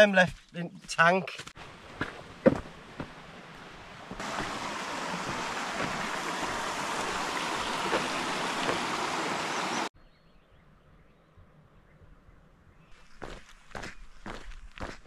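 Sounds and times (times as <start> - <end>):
stream rushing over stones: 1.8 - 9.9.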